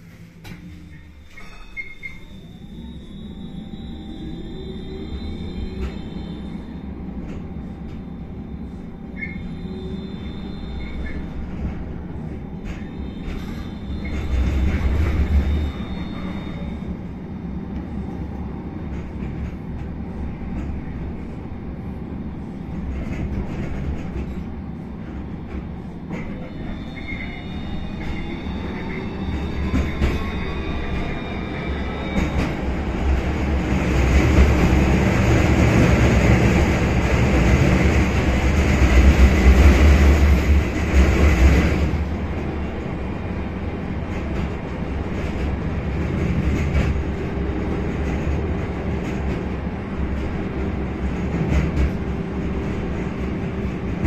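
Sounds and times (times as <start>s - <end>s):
tram wheels rumbling on rails: 0.0s - 54.0s
high squealing tones: 0.9s - 7.1s, 26.1s - 33.5s.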